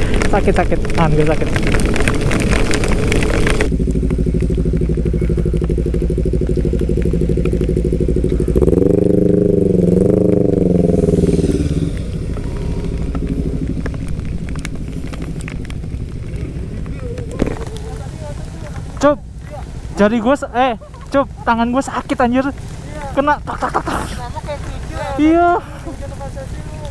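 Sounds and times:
wind and rain noise: 0.0 - 26.9
engine note wavering in pitch: 3.6 - 17.4
scooter engine idling: 3.6 - 26.9.

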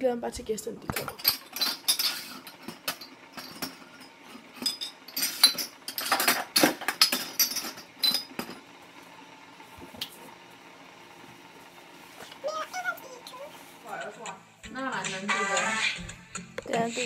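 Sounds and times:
dishes and utensils clattering: 0.9 - 8.6.

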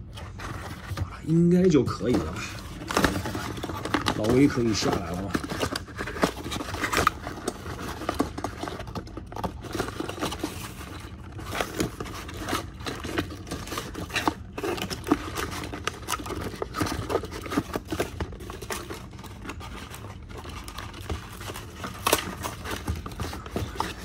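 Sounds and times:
cardboard rustling and tearing: 0.0 - 24.0.

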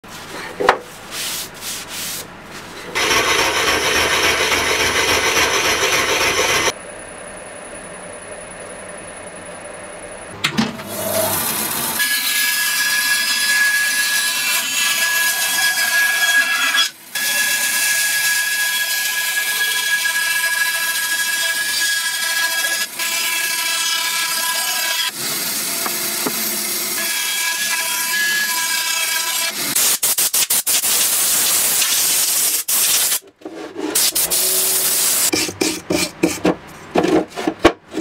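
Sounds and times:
paper towel rubbing wood: 1.0 - 2.9
bandsaw cutting wood: 2.9 - 6.7, 10.8 - 29.8.

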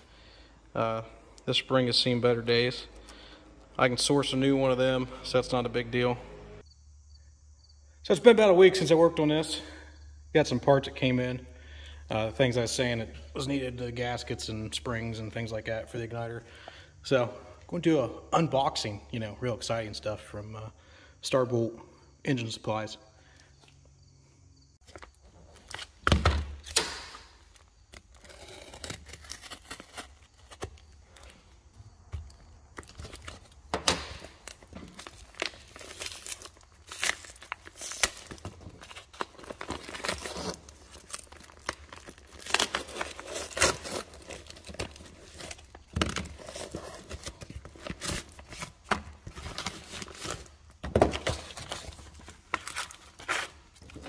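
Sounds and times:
paper tearing and crinkling: 27.5 - 30.9, 34.3 - 48.8.

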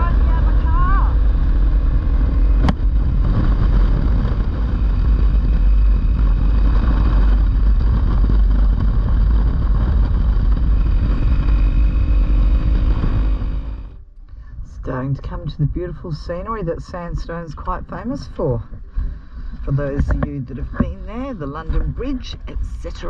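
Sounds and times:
motorcycle engine running: 0.0 - 14.2
wind buffeting microphone: 0.0 - 23.0.

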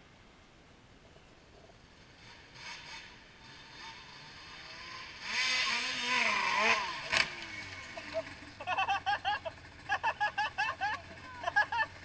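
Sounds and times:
snowmobile engine revving: 2.0 - 12.0
snowmobile crash: 5.4 - 12.0.

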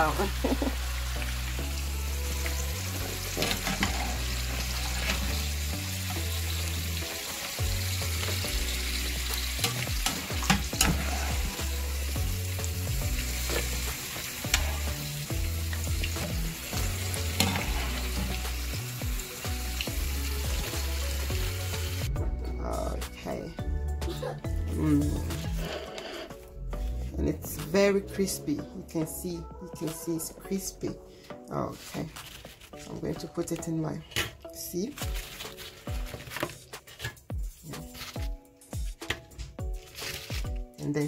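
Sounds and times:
hot oil sizzling: 0.0 - 22.1
oil crackles and pops: 2.3 - 22.0, 34.9 - 38.3, 39.7 - 40.7.

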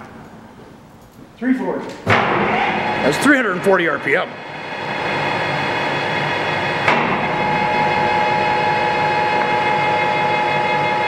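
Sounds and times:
sharp knock: 2.1 - 2.8, 6.8 - 7.4
lathe gearing whine: 2.5 - 11.0
high steady tone: 2.8 - 11.0.

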